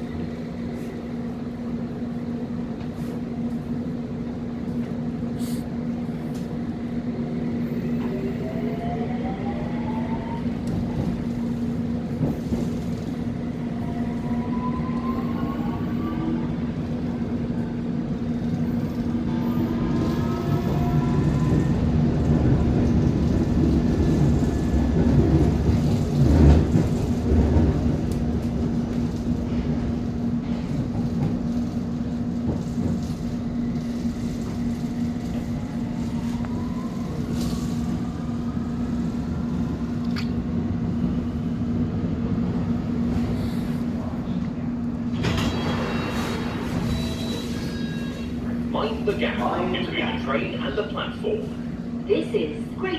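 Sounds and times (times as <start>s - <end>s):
wheels rumbling on track: 0.0s - 52.9s.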